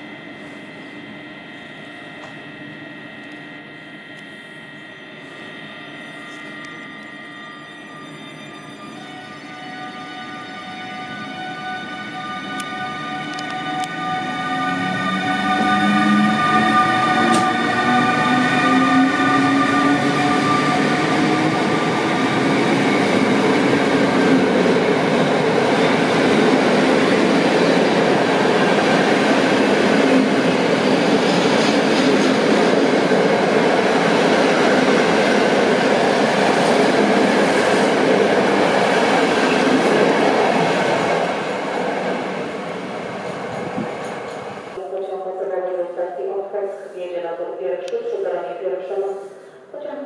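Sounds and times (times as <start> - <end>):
electric locomotive drive whining: 0.0 - 45.8
train wheels rumbling on rail: 12.5 - 44.8.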